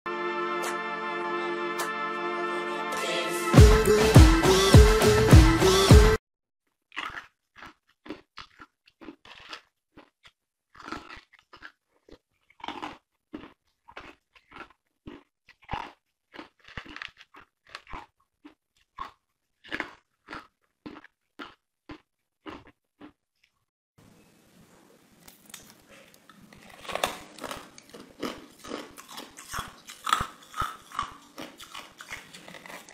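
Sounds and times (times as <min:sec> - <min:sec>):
intro music: 0:00.1 - 0:06.2
ice cubes crunching: 0:06.8 - 0:23.2, 0:25.2 - 0:32.9.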